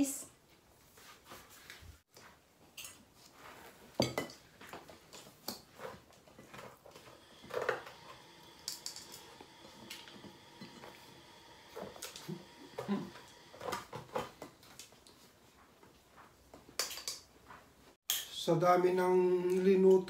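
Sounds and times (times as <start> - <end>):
cutlery clinking on plates: 4.0 - 4.4.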